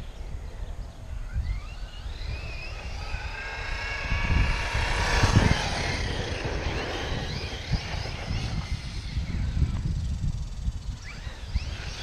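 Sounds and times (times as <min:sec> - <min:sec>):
electric motor whining: 0:01.2 - 0:12.0
low rumble: 0:02.1 - 0:10.7.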